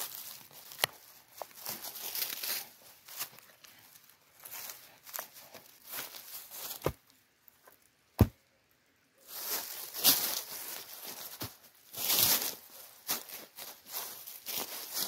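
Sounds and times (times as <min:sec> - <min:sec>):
dry leaves crackling: 0:00.0 - 0:07.0, 0:09.2 - 0:15.0
boots treading on leaves: 0:00.0 - 0:07.1, 0:09.2 - 0:15.0
dull thumps: 0:08.2 - 0:08.4.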